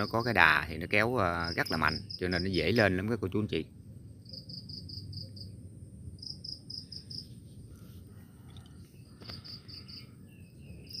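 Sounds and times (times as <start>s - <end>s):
insect chirping in high pulses: 0.0s - 11.0s
faint low rumble: 2.6s - 11.0s.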